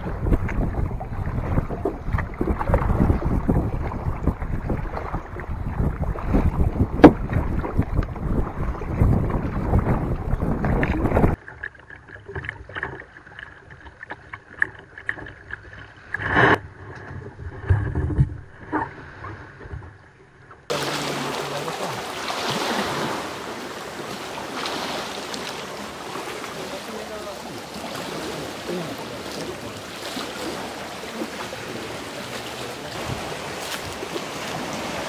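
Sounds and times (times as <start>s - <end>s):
small waves rushing on shore: 0.0s - 11.4s, 18.5s - 35.0s
wind buffeting microphone: 0.0s - 11.4s
small splashes and knocks: 0.0s - 19.0s, 20.7s - 35.0s.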